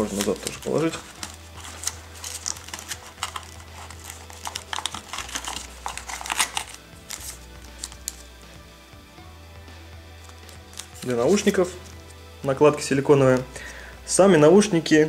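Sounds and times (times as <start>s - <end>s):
paper and plastic packaging rustling: 0.0s - 8.2s, 10.2s - 12.2s.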